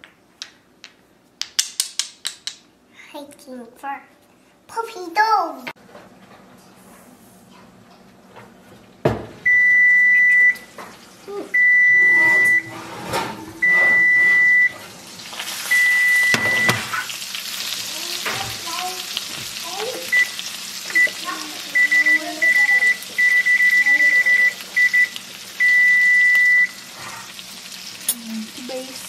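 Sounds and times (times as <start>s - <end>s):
oven door knock: 9.0s - 9.4s, 16.3s - 17.0s
long electronic beeps: 11.6s - 12.8s, 13.6s - 14.8s, 15.7s - 16.8s, 21.8s - 26.8s.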